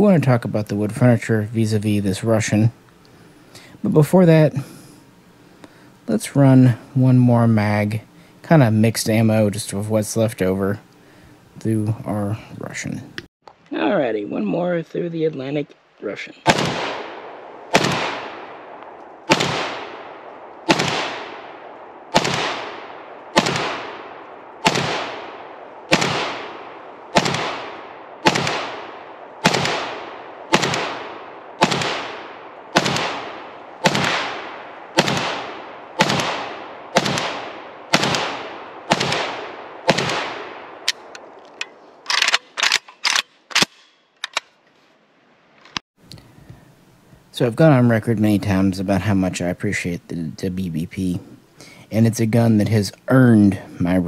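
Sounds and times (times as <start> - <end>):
rifle shots echoing: 16.4 - 41.4
short sharp gunshot cracks: 16.5 - 41.2.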